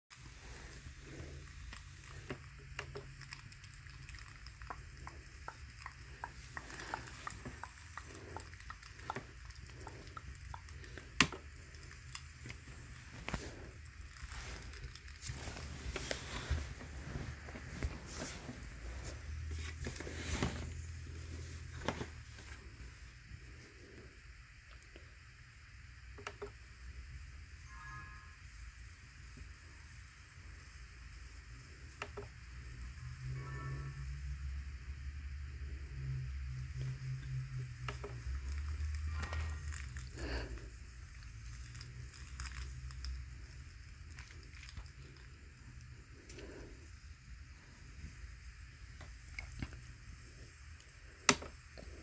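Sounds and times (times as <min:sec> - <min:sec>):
low hum: 0:00.2 - 0:52.0
rustling handling noise: 0:12.7 - 0:22.9.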